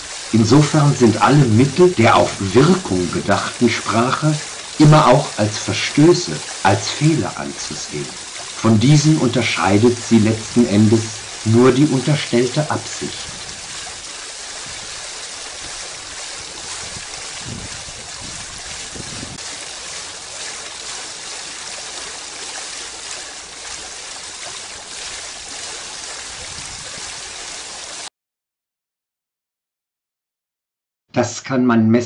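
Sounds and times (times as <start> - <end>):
fountain water splashing: 0.0 - 28.1.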